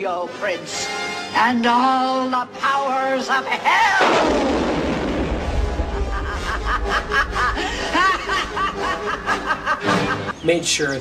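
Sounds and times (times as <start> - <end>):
dramatic music: 3.9 - 10.4
falling rush into rumbling blast: 4.0 - 8.3
voice cackling: 5.9 - 10.3.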